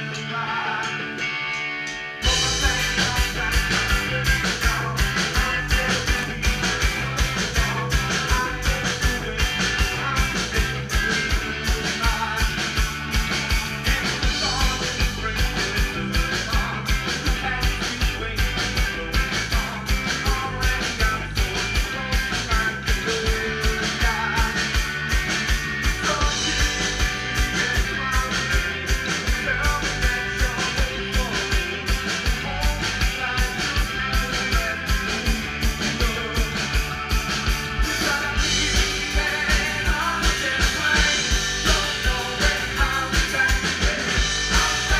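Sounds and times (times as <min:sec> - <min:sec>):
person singing into a microphone: 0:00.0 - 0:01.2, 0:02.2 - 0:25.0, 0:25.9 - 0:36.8, 0:37.8 - 0:44.9
bass guitar: 0:00.0 - 0:44.9
electric guitars: 0:00.0 - 0:44.9
fast drum beat: 0:02.2 - 0:44.9.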